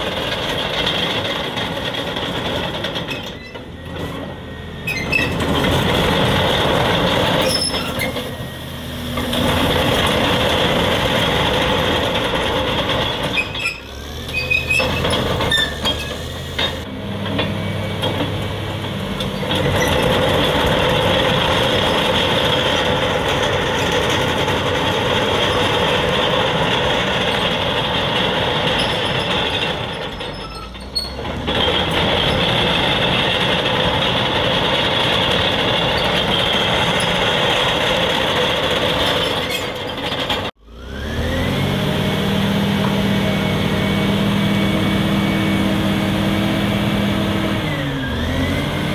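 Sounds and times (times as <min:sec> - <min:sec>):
diesel engine under load: 0:00.0 - 0:48.9.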